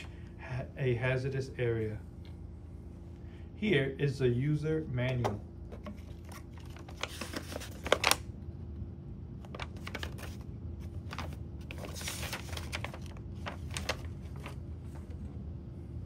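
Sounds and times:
paper rustling and crinkling: 5.7 - 8.2, 9.4 - 15.3.

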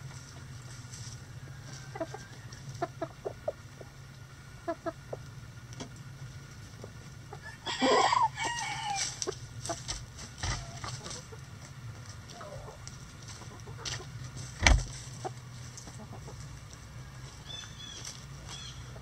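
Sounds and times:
chickens clucking: 0.0 - 19.0
rooster crowing: 1.2 - 2.6, 7.4 - 9.3.

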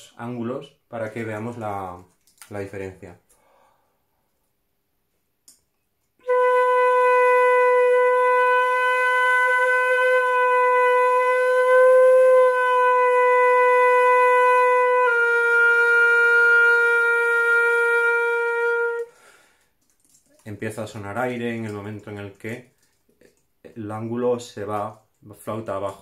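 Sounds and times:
flute long tone: 6.2 - 19.1.

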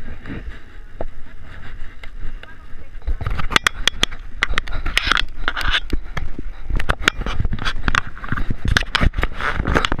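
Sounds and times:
camera handling knocks and scraping: 3.1 - 10.0.

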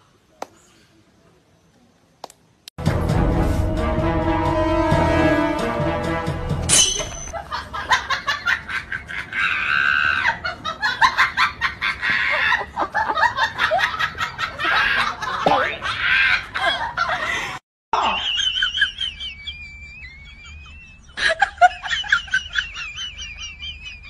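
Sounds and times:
music: 2.8 - 6.7
laugh track: 7.3 - 24.0.

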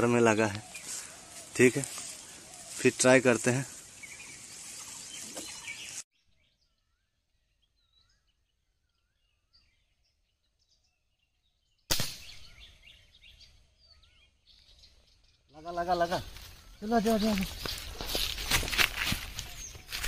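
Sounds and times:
birds chirping: 0.0 - 20.0
rustling in dry leaves: 0.6 - 6.0, 16.0 - 20.0
air rifle shot: 11.9 - 12.7.

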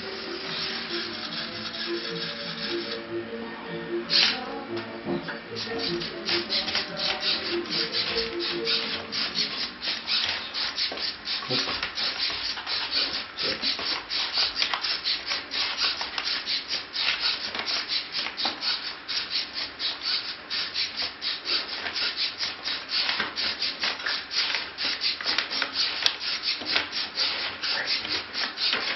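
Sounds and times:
robot servos buzzing and grinding: 0.0 - 3.0, 5.5 - 19.4.

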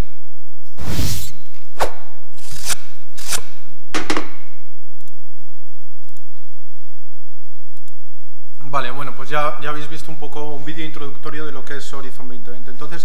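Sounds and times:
sharp knocking hits: 3.9 - 4.5.

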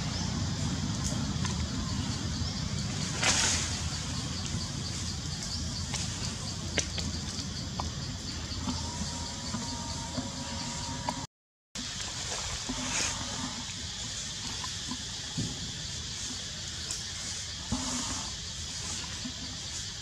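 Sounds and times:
low rumble: 0.0 - 11.3.

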